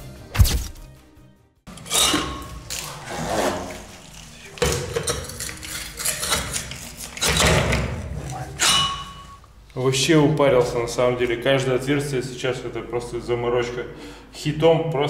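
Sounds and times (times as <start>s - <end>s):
core drill knocks and metallic clanks: 7.2s - 9.2s.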